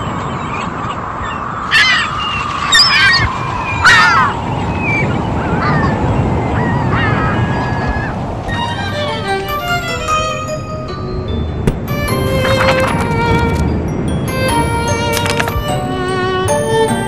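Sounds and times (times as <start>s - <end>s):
seagull cries: 1.3s - 8.2s.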